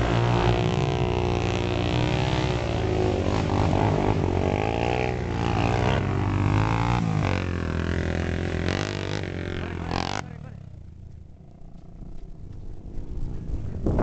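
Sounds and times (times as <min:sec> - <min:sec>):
quad engine revving: 0:00.0 - 0:10.9
quad engine running steadily: 0:00.0 - 0:14.0.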